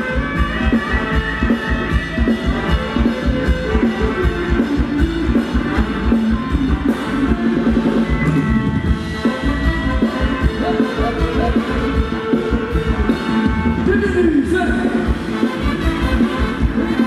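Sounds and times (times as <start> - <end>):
amplified band music: 0.0 - 17.0
drum kit beat: 0.0 - 17.0.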